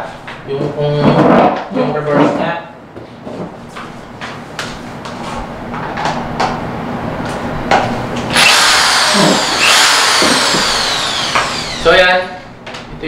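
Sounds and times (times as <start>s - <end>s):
drill motor whining: 8.3s - 12.4s.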